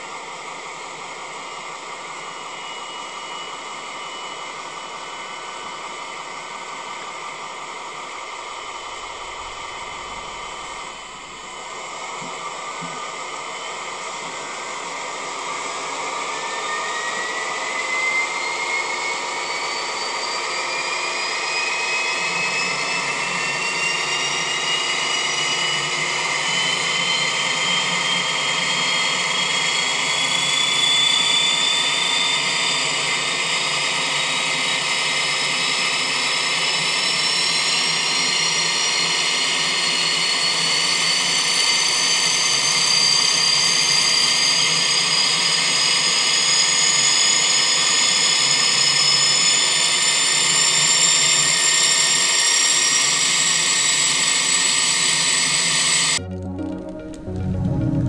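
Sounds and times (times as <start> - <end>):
rising whine: 0.1 - 15.1, 52.3 - 58.0
low hum: 8.3 - 12.2, 56.2 - 58.0.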